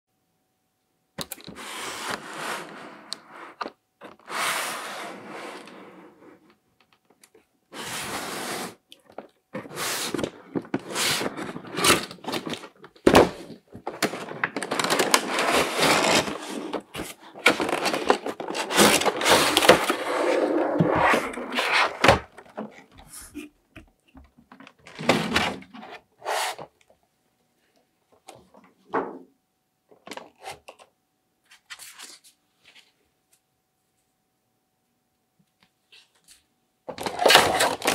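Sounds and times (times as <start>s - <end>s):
packaging scraping and sliding: 1.5s - 6.5s, 7.7s - 8.8s, 9.6s - 23.3s, 36.9s - 37.9s.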